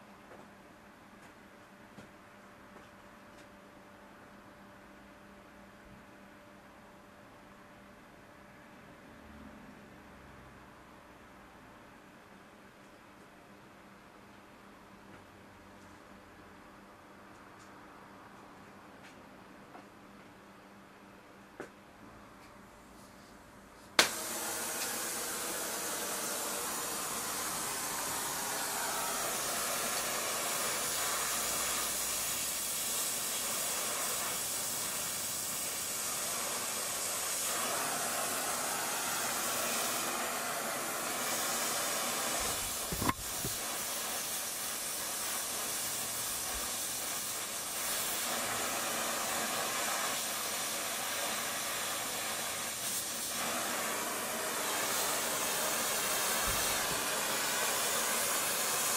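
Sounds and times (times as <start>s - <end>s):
torch flame hissing: 24.0s - 58.9s.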